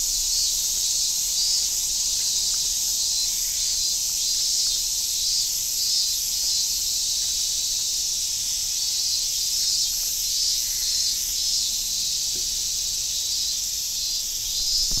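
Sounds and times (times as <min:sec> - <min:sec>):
insects shrilling: 0:14.3 - 0:15.0.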